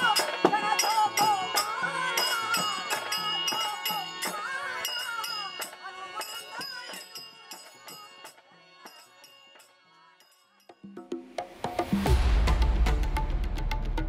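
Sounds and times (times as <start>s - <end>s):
person singing: 0.0s - 9.0s
rattling jingling percussion: 0.0s - 14.0s.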